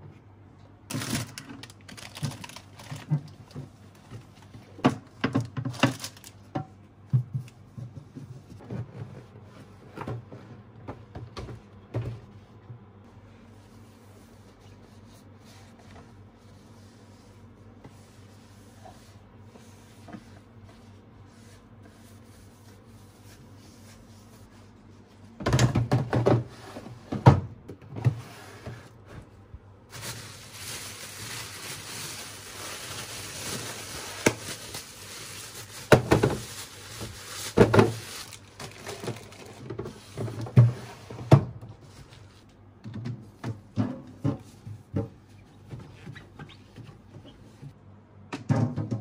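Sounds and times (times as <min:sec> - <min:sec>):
plastic bags rustling: 0:00.9 - 0:06.5, 0:29.9 - 0:40.4
plastic drawers clunking: 0:25.4 - 0:26.5.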